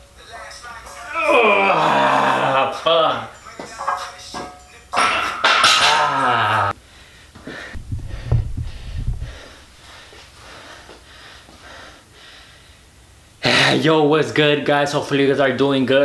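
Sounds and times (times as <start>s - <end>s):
man groaning loudly: 1.1s - 3.2s, 5.8s - 6.8s
heavy panting breaths: 6.9s - 13.0s
low thuds: 7.8s - 9.9s.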